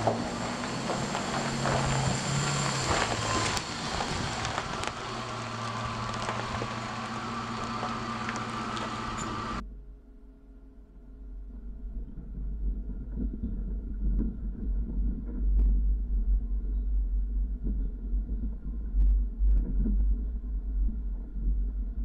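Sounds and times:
steady engine hum: 0.0s - 9.6s
vehicle rumbling over rocky track: 0.0s - 9.6s.

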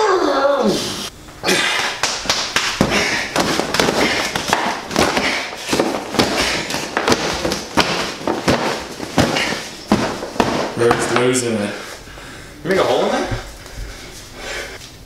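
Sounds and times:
punches smacking a punching bag: 1.8s - 11.4s.

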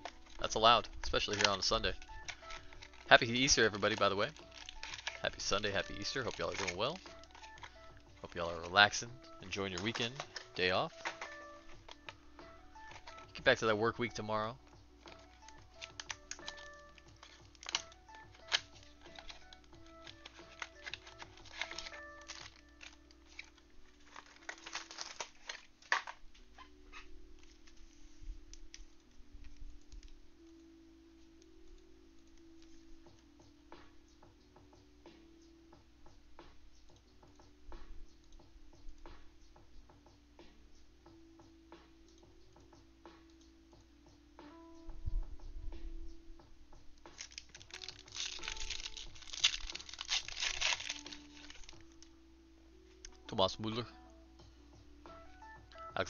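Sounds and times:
plastic wrappers crinkling: 0.0s - 30.2s, 47.1s - 52.1s
soft background music: 0.0s - 56.0s.

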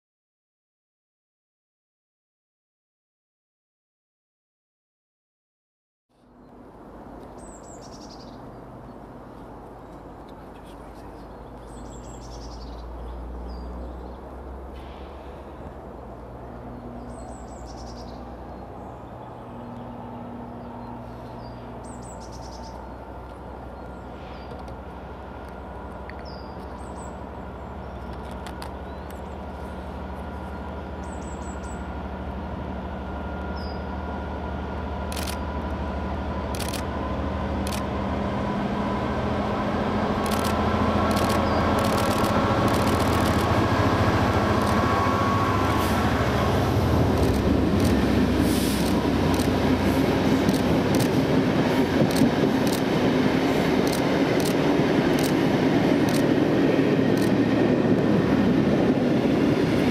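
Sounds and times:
diesel locomotive engine approaching: 6.1s - 59.9s
birds chirping: 7.2s - 14.4s, 15.2s - 32.1s, 40.2s - 48.1s
sharp clicks: 40.2s - 43.6s, 44.6s - 44.8s, 47.1s - 48.0s, 48.8s - 49.6s, 50.4s - 51.2s, 52.0s - 52.9s, 53.8s - 55.4s, 56.0s - 56.3s, 57.1s - 57.4s.

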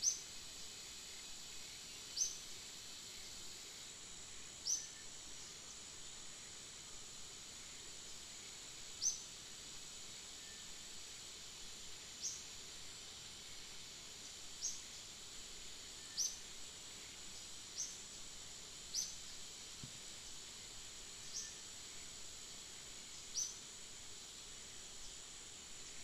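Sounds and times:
high insect drone: 0.0s - 26.0s.

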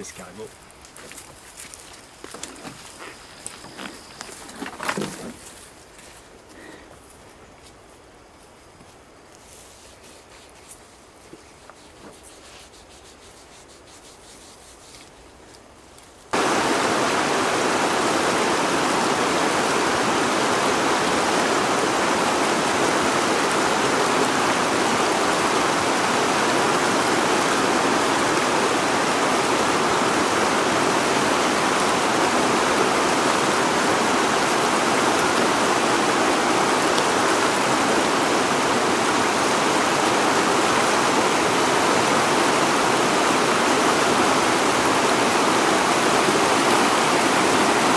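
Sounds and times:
river rapids rushing: 16.4s - 47.9s.

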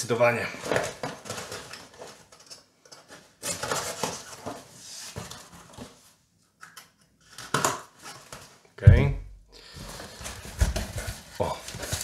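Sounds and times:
cardboard and tape rustling: 0.4s - 6.2s, 7.2s - 8.6s, 9.6s - 12.0s.

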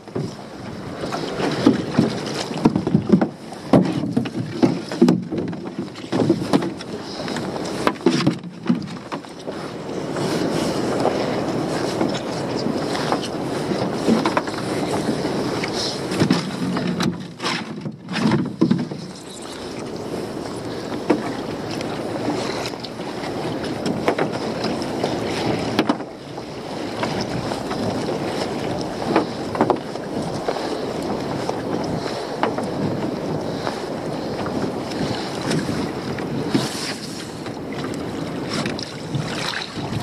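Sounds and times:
water lapping around dinghy: 0.0s - 40.0s
wind on microphone: 0.0s - 40.0s.

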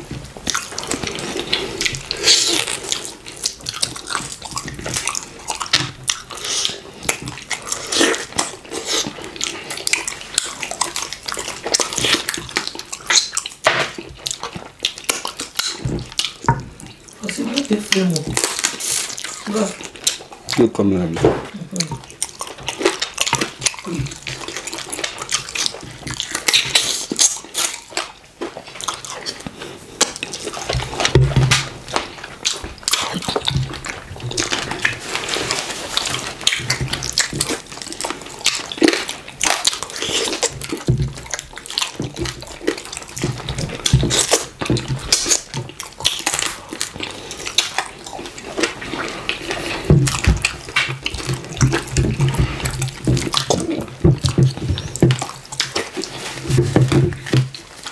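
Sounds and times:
chewing and lip smacking: 0.0s - 57.9s.

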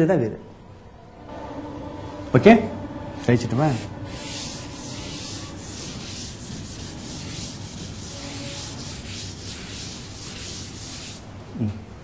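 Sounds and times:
eraser scrubbing a chalkboard: 3.6s - 11.2s.

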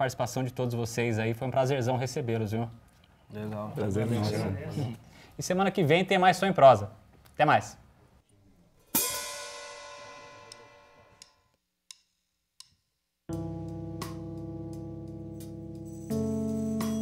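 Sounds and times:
cymbal ringing: 8.9s - 11.4s
held keyboard chord: 13.3s - 17.0s.

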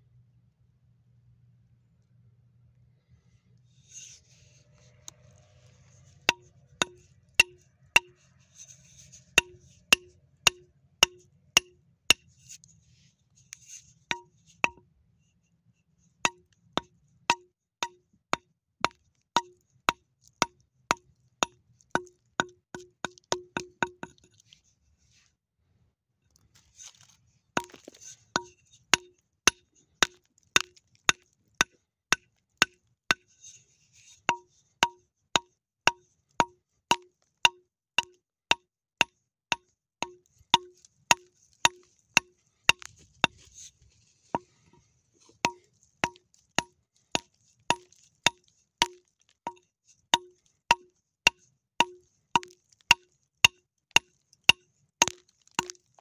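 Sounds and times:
hammer striking steel chisel: 6.3s - 8.3s, 9.3s - 12.3s, 14.1s - 14.8s, 16.3s - 24.3s, 27.6s - 33.2s, 34.3s - 43.5s, 45.3s - 55.9s.

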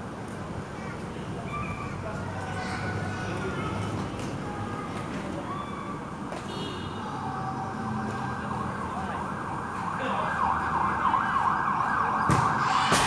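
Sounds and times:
emergency vehicle siren yelping: 7.2s - 13.0s.

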